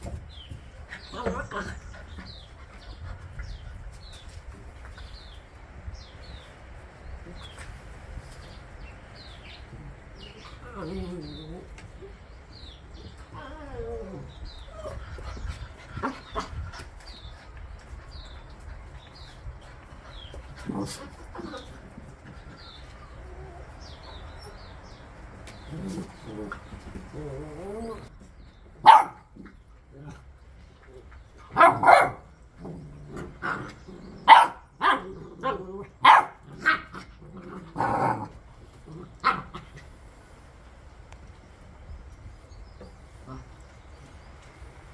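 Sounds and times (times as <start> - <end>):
birds chirping: 0.0 - 44.9
puppy whining: 12.8 - 15.3
puppy barking: 28.8 - 29.3, 31.5 - 32.3, 34.2 - 37.0.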